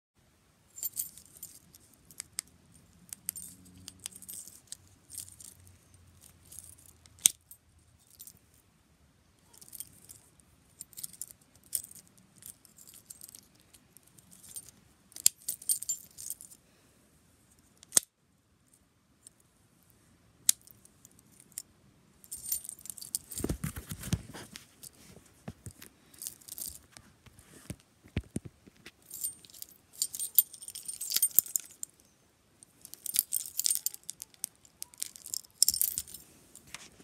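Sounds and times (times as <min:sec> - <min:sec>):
keys jangling: 0:00.8 - 0:08.4, 0:09.5 - 0:16.6, 0:22.3 - 0:25.0, 0:25.6 - 0:27.0, 0:28.9 - 0:32.2, 0:32.8 - 0:36.8.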